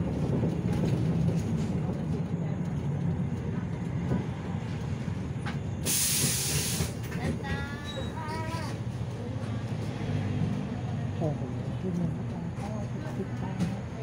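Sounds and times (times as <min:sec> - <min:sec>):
bus engine droning: 0:00.0 - 0:14.0
compressed air hiss: 0:05.8 - 0:07.0.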